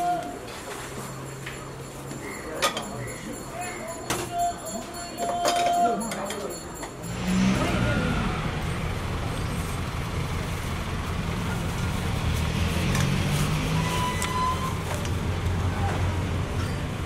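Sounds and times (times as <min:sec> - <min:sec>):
road traffic rumble: 0:05.9 - 0:17.0.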